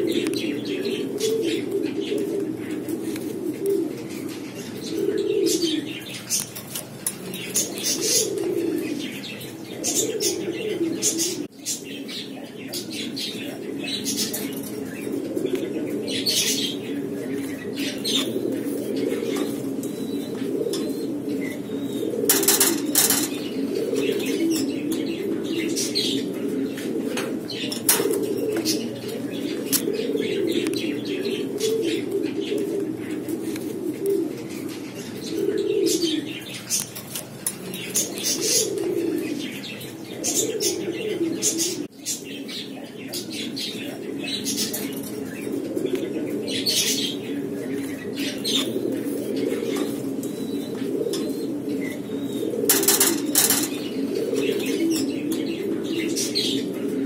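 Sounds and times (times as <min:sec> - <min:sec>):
pigeons cooing: 0:00.0 - 0:57.0.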